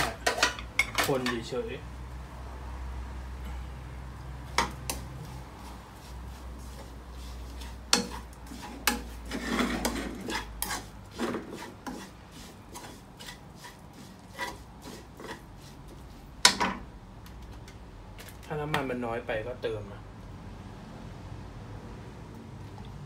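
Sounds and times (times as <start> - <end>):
metal spatula scraping a wok: 4.6 - 16.7.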